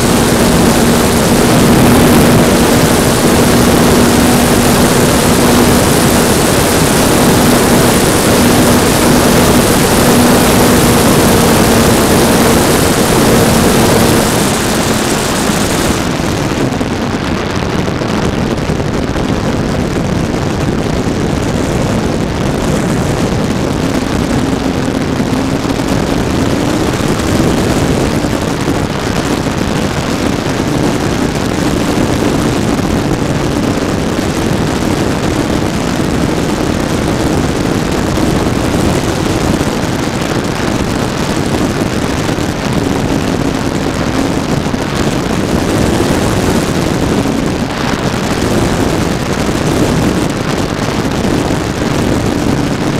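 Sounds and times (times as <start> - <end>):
electric motor and propeller hum: 0.0 - 16.8
wind rushing: 0.0 - 52.9.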